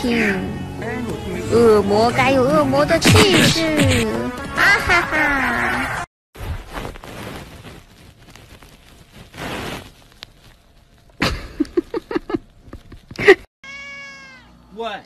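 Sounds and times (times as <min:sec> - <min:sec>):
soft rustling: 0:06.4 - 0:13.4.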